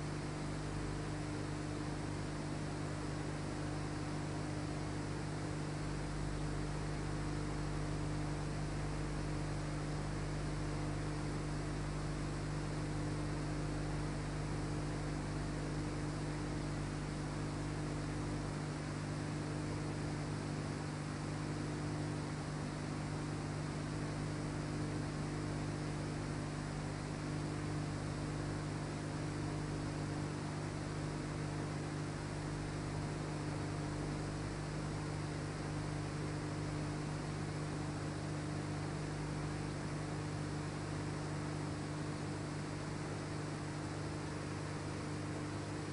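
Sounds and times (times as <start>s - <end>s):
electrical hum: 0.0s - 45.9s.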